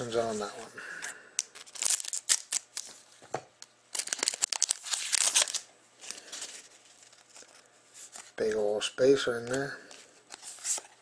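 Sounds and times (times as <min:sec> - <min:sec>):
foil pack crinkling and tearing: 0:01.4 - 0:03.0, 0:03.9 - 0:07.7
cards sliding and rustling: 0:04.0 - 0:08.4, 0:09.4 - 0:11.0.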